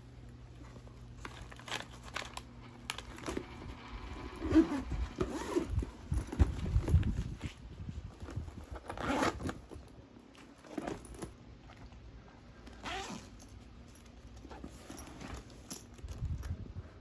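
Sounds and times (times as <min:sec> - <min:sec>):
bags rustling: 0:00.5 - 0:16.6
bag zipper opening: 0:04.3 - 0:06.4, 0:08.7 - 0:09.7, 0:12.8 - 0:13.5.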